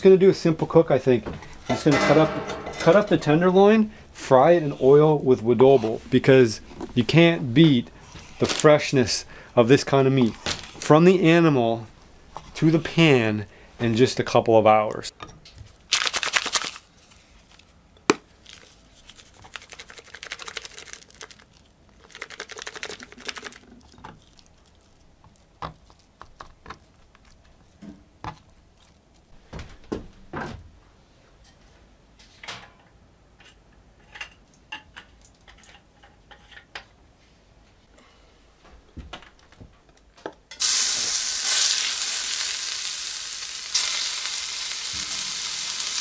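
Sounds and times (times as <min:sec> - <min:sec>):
seasoning shaker rattling: 0:15.9 - 0:16.8, 0:18.5 - 0:24.4.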